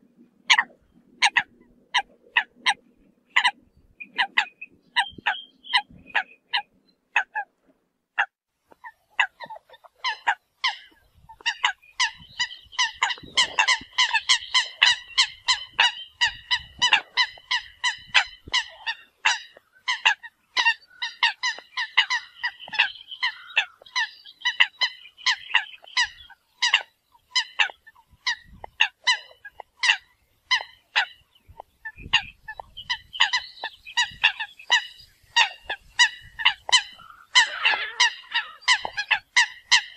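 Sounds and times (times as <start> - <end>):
coots honking calls: 8.2 - 39.9.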